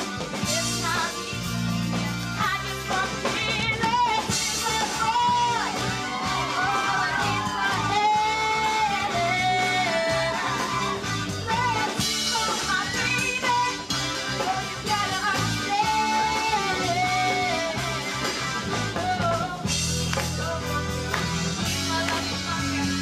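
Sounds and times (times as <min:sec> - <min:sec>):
rock band playing: 0:00.0 - 0:23.0
girl singing: 0:06.4 - 0:17.9.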